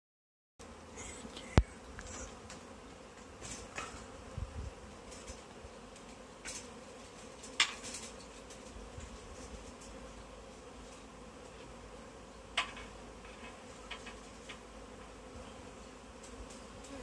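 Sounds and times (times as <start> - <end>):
bee swarm buzzing: 0.6 - 17.0
rustles and knocks: 2.0 - 4.1, 5.0 - 10.1, 12.6 - 14.7.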